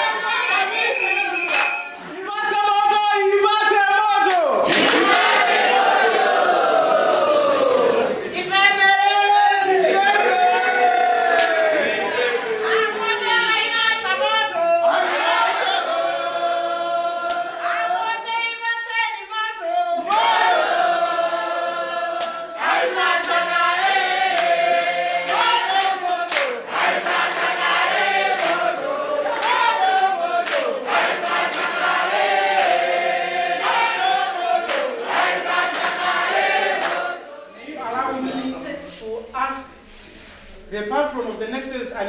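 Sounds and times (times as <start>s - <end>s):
group singing unaccompanied: 0.0s - 2.1s, 4.6s - 8.3s, 14.5s - 18.3s, 19.6s - 39.0s
handclaps: 0.4s - 2.0s, 4.2s - 5.1s, 20.1s - 20.4s, 23.2s - 26.6s, 27.4s - 28.7s, 29.3s - 30.8s, 31.4s - 31.9s, 32.5s - 32.9s, 33.6s - 35.0s, 35.6s - 37.1s.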